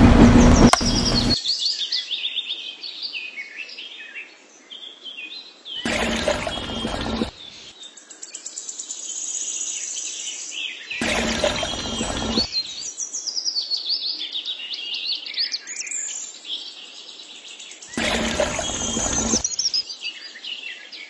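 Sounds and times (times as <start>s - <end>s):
birds chirping: 0.0s - 1.4s, 5.8s - 7.7s, 11.0s - 12.9s, 17.9s - 19.8s
small motor running: 0.0s - 1.4s, 5.8s - 7.4s, 11.0s - 12.6s, 18.0s - 19.7s.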